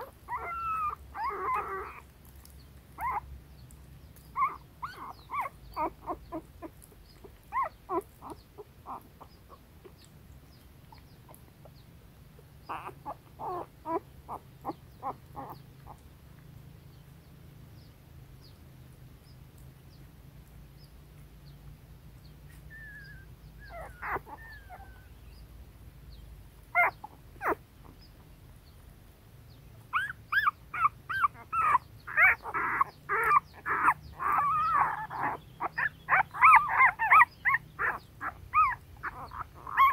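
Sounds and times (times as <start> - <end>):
puppies whimpering and squeaking: 0.0 - 10.1, 12.6 - 16.0, 22.4 - 25.4, 26.7 - 28.2, 29.9 - 39.9.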